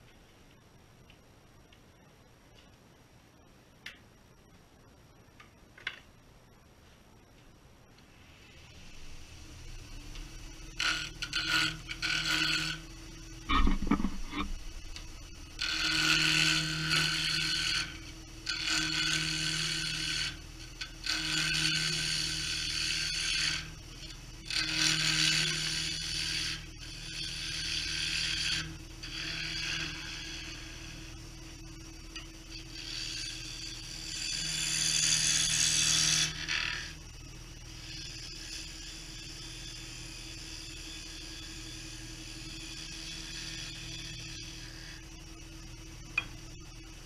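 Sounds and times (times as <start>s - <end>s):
wood lathe humming: 10.0s - 31.2s, 32.2s - 37.0s, 37.7s - 45.2s
gouge cutting spinning wood: 10.6s - 31.2s, 32.5s - 45.1s.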